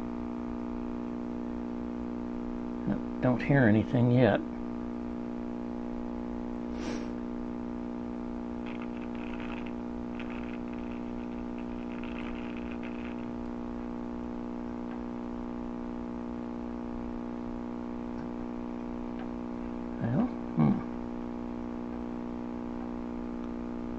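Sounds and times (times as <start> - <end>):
radio speaker mains hum: 0.0 - 23.9
scratchy hiss: 8.6 - 14.3.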